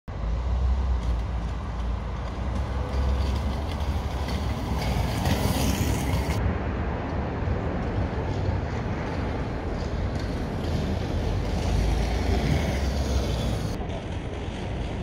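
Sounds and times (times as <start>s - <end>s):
low rumbling street noise: 0.1s - 15.0s.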